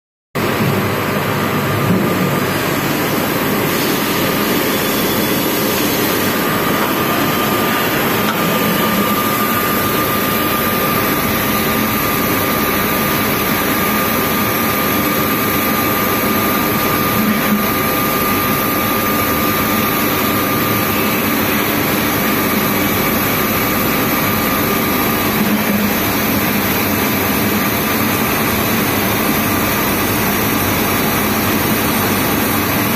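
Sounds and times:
thin steady whine: 0.4s - 32.9s
lathe running: 2.5s - 32.8s.

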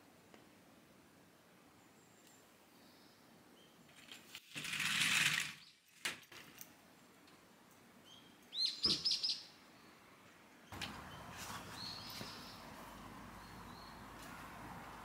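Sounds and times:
sliding glass door opening: 4.1s - 6.6s
small bird chirping: 8.0s - 10.0s, 10.6s - 14.2s.

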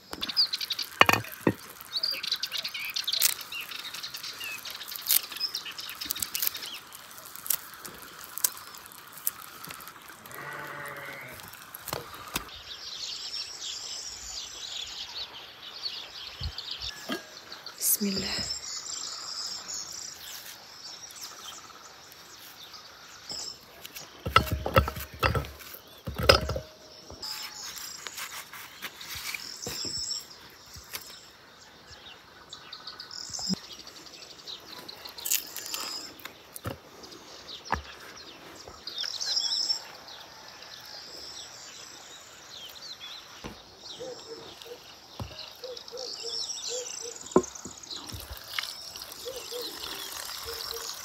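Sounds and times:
birds chirping: 0.0s - 40.4s, 41.3s - 51.0s
insects trilling: 0.1s - 12.6s, 33.0s - 51.0s
utensils knocking on bowl: 1.0s - 1.6s, 24.3s - 27.2s.

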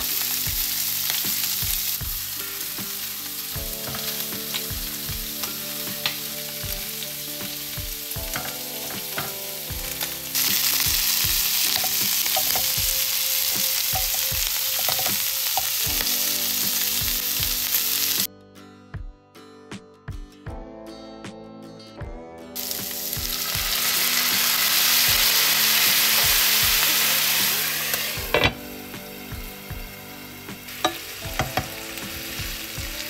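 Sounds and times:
shrimp sizzling in a frying pan: 0.0s - 18.3s, 22.6s - 33.0s.

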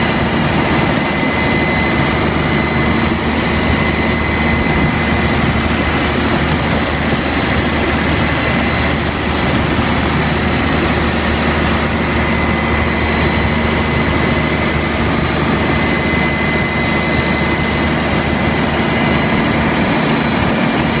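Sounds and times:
diesel generator droning: 0.0s - 21.0s
high whine: 0.0s - 21.0s.

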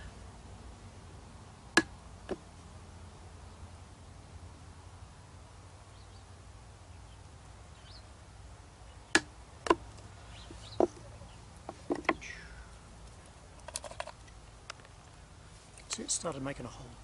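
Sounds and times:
wooden club striking chisel: 1.8s - 2.4s, 9.1s - 9.8s, 11.7s - 12.2s.

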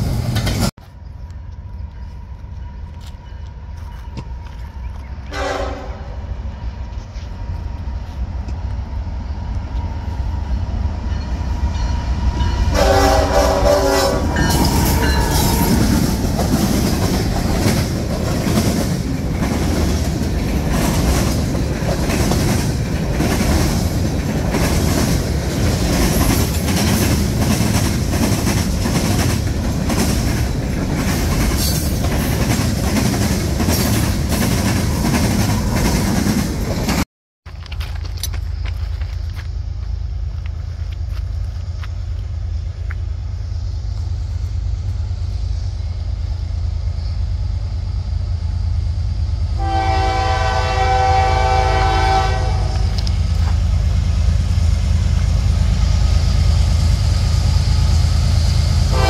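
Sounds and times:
train cars rumbling: 0.0s - 59.0s
locomotive horn blast: 5.3s - 6.2s, 12.7s - 15.9s, 49.6s - 53.0s
wheels clacking over rail joints: 14.3s - 39.4s.

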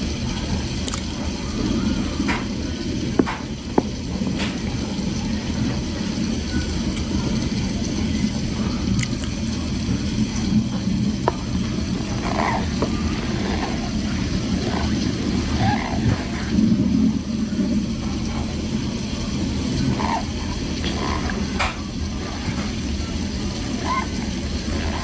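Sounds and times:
chewing mashed potatoes: 0.8s - 2.6s, 8.8s - 9.5s.

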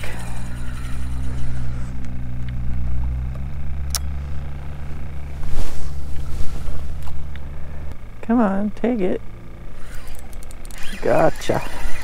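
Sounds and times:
low mechanical hum: 0.0s - 12.0s
sharp click: 3.9s - 4.1s.

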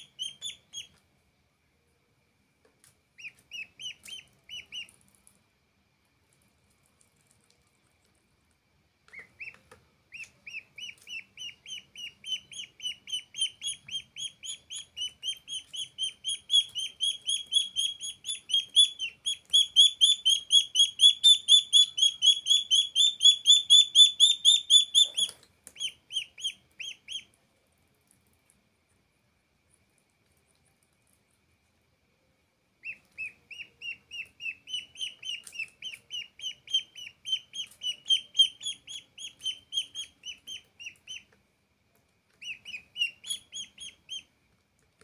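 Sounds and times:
duckling peeping: 0.0s - 1.0s, 3.2s - 5.3s, 9.0s - 27.4s, 32.8s - 41.4s, 42.3s - 44.3s.

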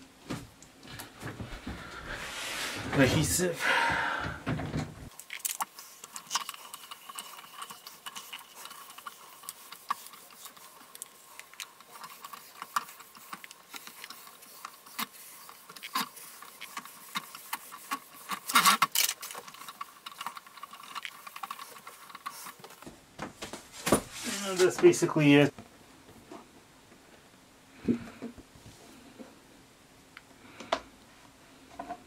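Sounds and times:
scrapes: 0.9s - 5.1s, 23.4s - 25.0s.

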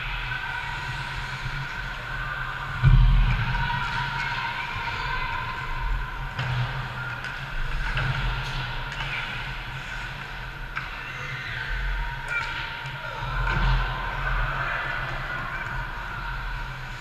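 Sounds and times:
arena rumble and hum: 0.0s - 17.0s
hockey sticks and puck clacking: 6.3s - 14.4s.

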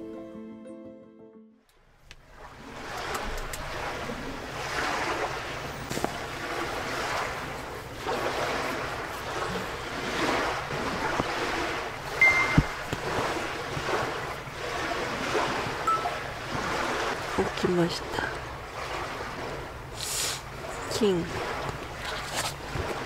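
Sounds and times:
lake waves washing onto shore: 2.2s - 23.0s
short high tone: 12.2s - 12.8s, 15.9s - 16.2s.

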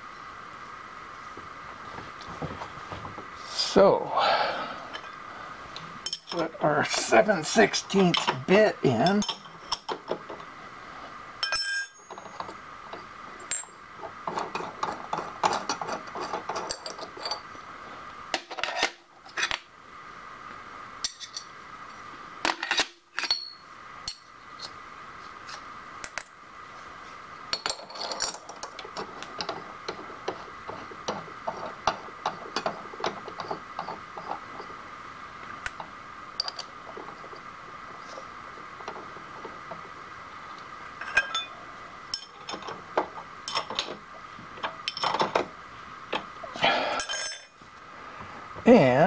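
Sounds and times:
machine hum: 0.0s - 18.4s, 23.7s - 49.0s
metal tools clinking: 6.0s - 10.0s, 11.4s - 17.5s, 22.5s - 24.3s, 27.5s - 29.7s, 36.4s - 37.3s, 41.0s - 42.8s, 43.5s - 44.0s, 44.6s - 45.4s, 46.9s - 47.6s.

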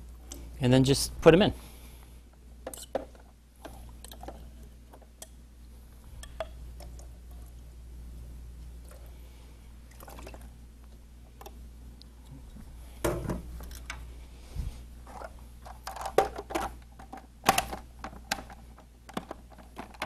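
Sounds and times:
plastic clicks and knocks: 15.9s - 20.0s.

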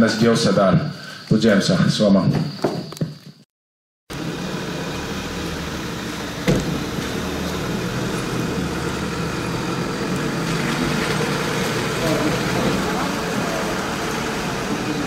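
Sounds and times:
vehicle engines running: 4.1s - 15.0s.

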